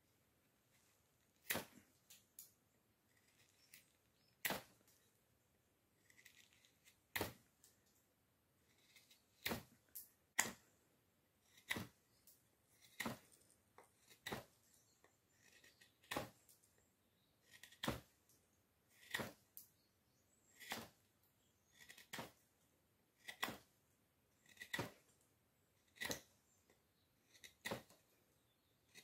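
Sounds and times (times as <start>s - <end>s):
knife slicing wood shavings: 1.3s - 2.3s, 3.1s - 5.0s, 6.0s - 7.5s, 8.7s - 10.6s, 11.4s - 16.6s, 17.4s - 18.2s, 18.9s - 19.9s, 20.5s - 22.4s, 23.2s - 23.7s, 24.4s - 25.1s, 25.8s - 26.4s, 27.2s - 29.0s.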